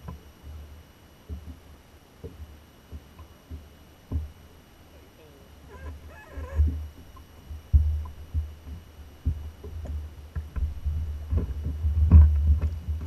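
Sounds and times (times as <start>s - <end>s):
wind rumble on microphone: 5.7s - 13.0s.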